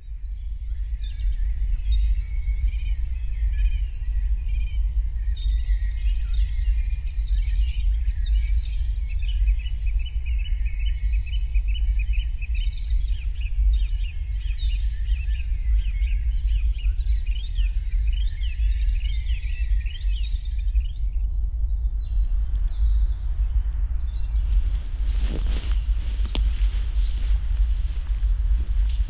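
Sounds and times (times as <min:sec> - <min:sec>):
songbirds singing and chirping: 0:00.0 - 0:29.0
steady low rumble: 0:20.1 - 0:29.0.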